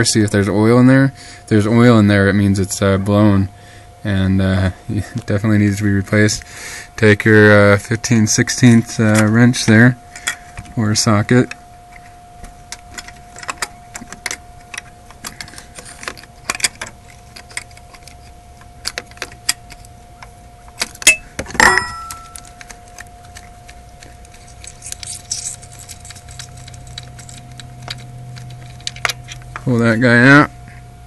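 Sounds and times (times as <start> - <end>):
faint steady tone: 0.0 - 31.0
loud metal clank: 21.0 - 22.3
wrench clinking against metal: 21.0 - 22.8, 24.3 - 29.4.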